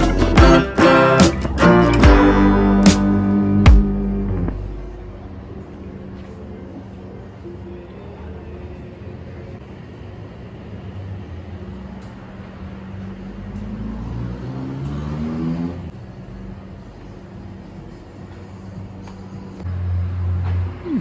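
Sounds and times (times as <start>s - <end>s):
vehicle engine revving: 0.0s - 5.3s, 12.7s - 16.4s
steady low hum: 1.5s - 13.8s, 15.9s - 21.0s.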